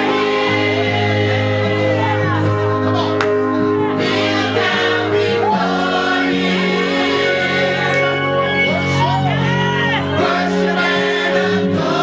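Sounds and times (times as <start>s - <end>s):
choir singing gospel: 0.0s - 12.0s.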